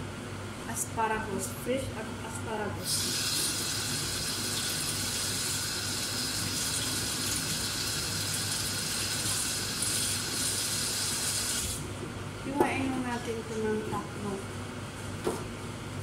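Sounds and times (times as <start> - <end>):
water running from tap: 2.8 - 11.8.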